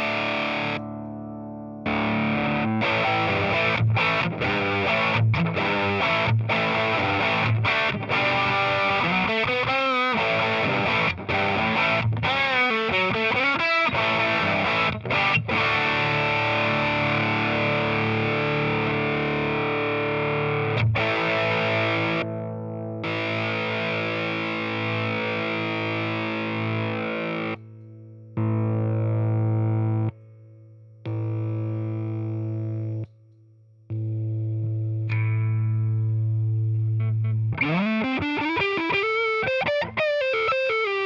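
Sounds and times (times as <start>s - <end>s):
overdriven electric guitar: 0.0s - 30.4s, 31.1s - 33.1s, 33.9s - 41.0s.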